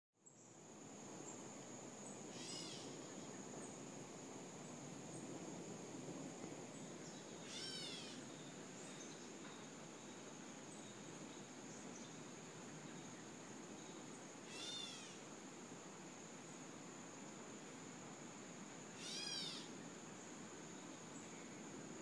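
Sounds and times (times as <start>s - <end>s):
bird mewing call: 2.3s - 3.0s, 7.4s - 8.2s, 14.5s - 15.2s, 19.0s - 19.7s.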